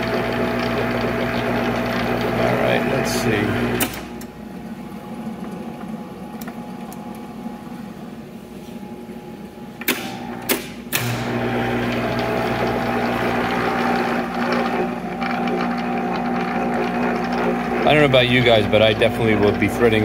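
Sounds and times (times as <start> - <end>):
lathe running hum: 0.0 - 20.0.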